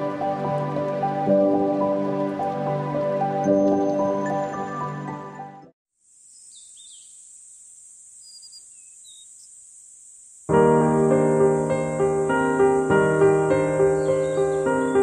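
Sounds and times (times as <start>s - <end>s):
steady high hiss: 0.0s - 5.0s, 6.0s - 15.0s
piano music: 0.0s - 5.7s, 10.5s - 15.0s
bird chirps: 6.3s - 7.3s, 8.2s - 9.5s, 13.6s - 15.0s.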